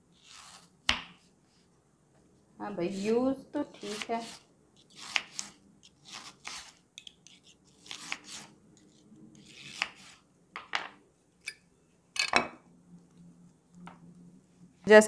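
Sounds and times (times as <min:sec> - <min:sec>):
knife slicing onion: 0:00.1 - 0:01.2, 0:02.9 - 0:10.2.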